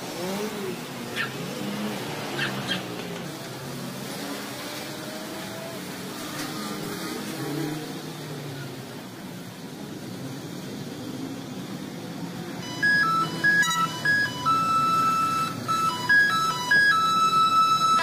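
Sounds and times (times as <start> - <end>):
simple electronic melody: 12.6 - 18.0.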